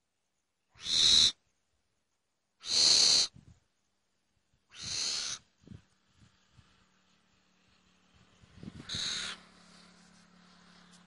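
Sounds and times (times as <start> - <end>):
harsh hissing animal screeches: 0.8 - 1.4, 2.6 - 3.4, 4.7 - 5.9, 8.6 - 11.0.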